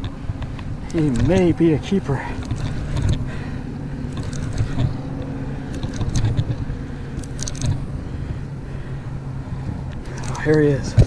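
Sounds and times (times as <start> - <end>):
low motor-like hum: 0.0 - 11.0
fishing reel clicking: 0.9 - 1.5, 2.4 - 3.2, 4.1 - 5.0, 7.2 - 7.8.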